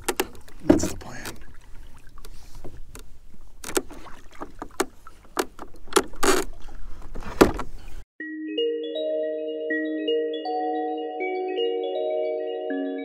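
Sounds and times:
mallet percussion music: 8.2s - 13.0s.

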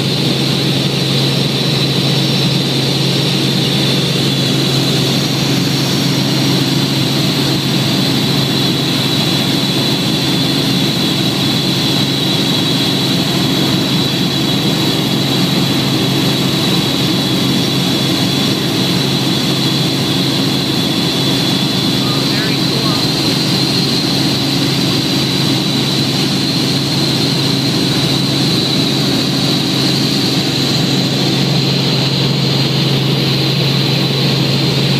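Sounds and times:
helicopter rotor and engine drone: 0.0s - 34.9s
high whine: 21.6s - 23.8s.

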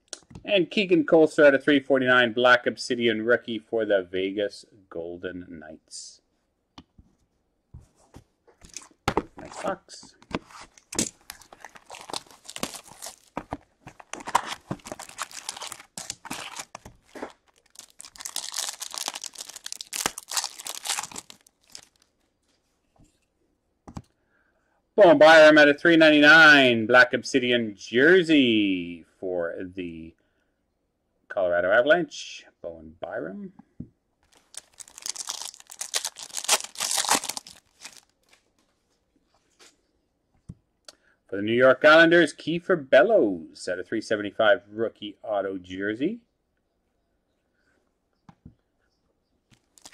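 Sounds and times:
plastic wrap crinkling and tearing: 10.6s - 22.2s, 34.3s - 38.5s, 49.6s - 49.9s.

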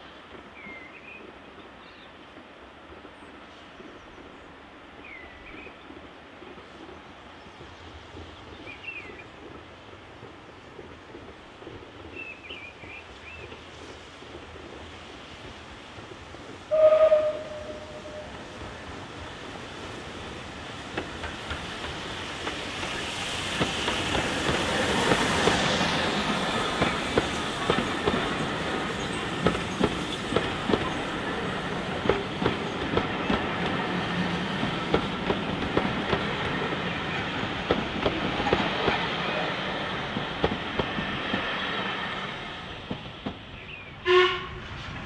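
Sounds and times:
steam engine passing: 12.8s - 45.0s
steam whistle toot: 16.7s - 18.4s, 44.0s - 44.6s
coach wheels clicking over rail joints: 20.1s - 43.6s.

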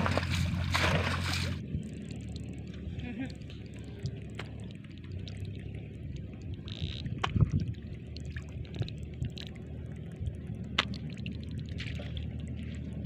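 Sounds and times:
sharp water splashes: 0.0s - 1.6s, 10.7s - 12.5s
low steady rumble: 0.0s - 13.0s
muddy water sloshing: 0.0s - 13.0s.

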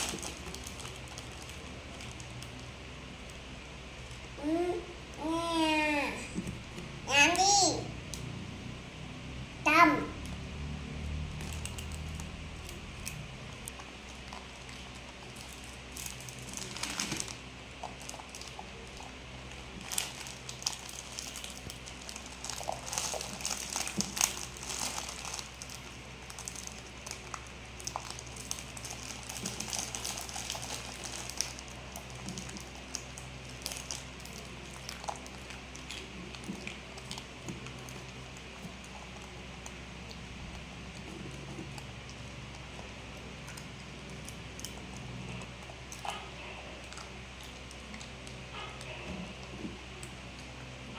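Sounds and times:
plastic packet crinkling: 0.0s - 2.7s, 11.4s - 39.4s
dry noodles crackling: 0.0s - 4.2s, 11.1s - 50.9s.

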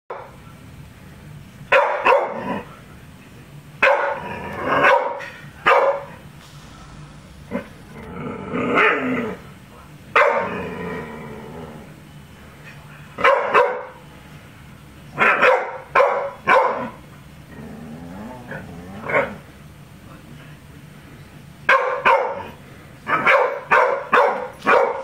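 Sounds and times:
dog barking: 1.7s - 2.4s, 3.8s - 6.2s, 10.2s - 10.6s, 13.2s - 14.0s, 15.2s - 17.0s, 21.7s - 25.0s.

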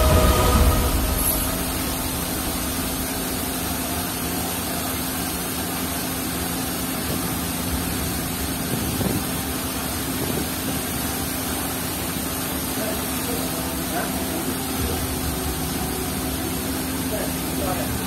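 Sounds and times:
low hum: 0.0s - 8.7s
constant hiss: 0.0s - 18.0s
running machinery drone: 0.0s - 18.0s.

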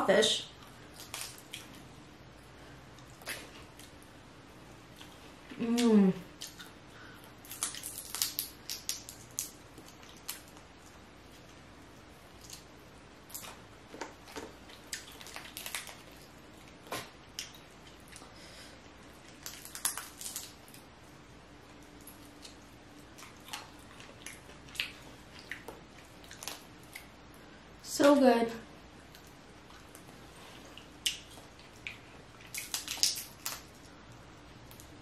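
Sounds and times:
wet squishing: 0.6s - 1.9s, 4.9s - 18.4s, 19.0s - 20.9s, 21.7s - 27.4s, 29.0s - 35.0s
crawfish shells cracking: 0.9s - 1.7s, 7.4s - 10.6s, 13.3s - 16.3s, 19.3s - 20.8s, 32.5s - 33.8s.

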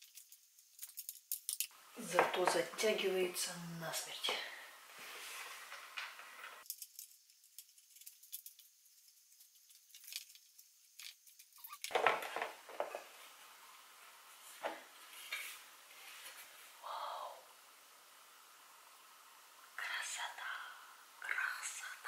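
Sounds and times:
mirror thumping and rustling: 11.9s - 13.2s.

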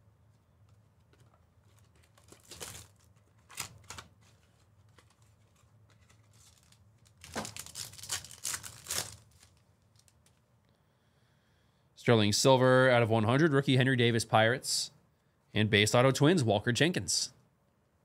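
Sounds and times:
wrappers tearing and crinkling: 1.7s - 10.4s.

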